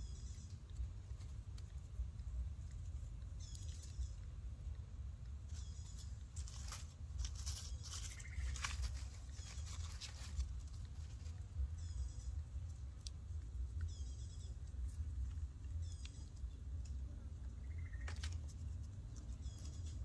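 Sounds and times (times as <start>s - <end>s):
low steady rumble: 0.0s - 20.0s
dry leaf litter rustling: 5.5s - 11.6s.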